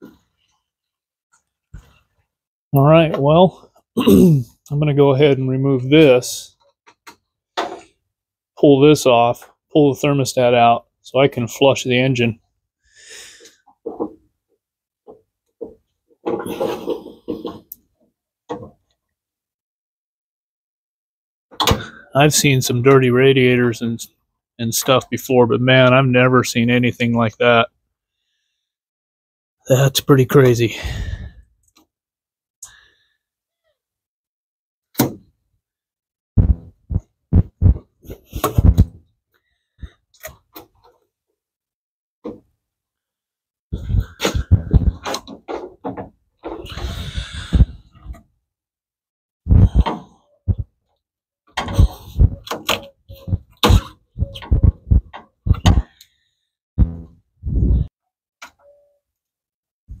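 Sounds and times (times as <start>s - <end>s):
rubber hose thumping and knocking: 36.4s - 39.0s, 43.8s - 46.8s, 51.6s - 55.9s.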